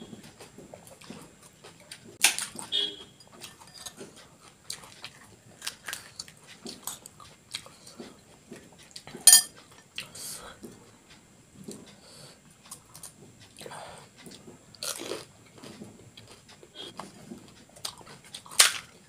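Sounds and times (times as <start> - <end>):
metal spoon clinking on glass bowl: 9.3 - 9.5.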